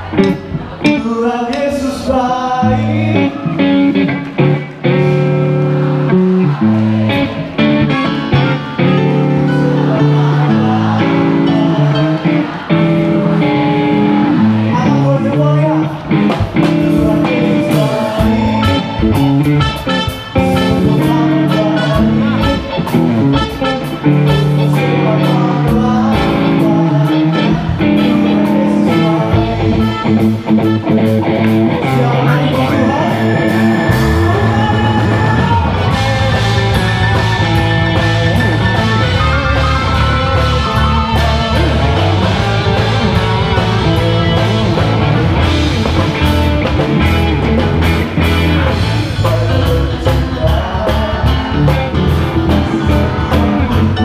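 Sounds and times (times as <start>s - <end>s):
electric guitars: 0.0s - 54.0s
keyboard: 0.0s - 54.0s
drum kit: 15.9s - 54.0s.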